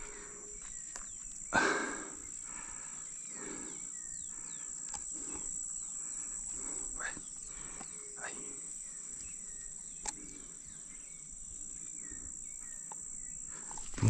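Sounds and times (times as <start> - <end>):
insects chirping drone: 0.0 - 14.0.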